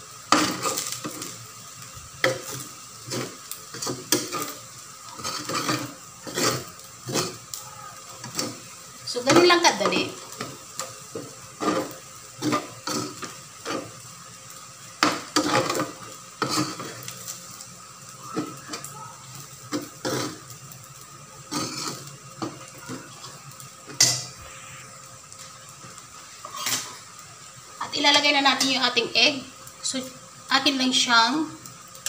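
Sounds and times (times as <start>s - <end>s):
metal spoon scraping a wok: 5.2s - 7.4s, 21.5s - 22.1s, 26.4s - 27.0s.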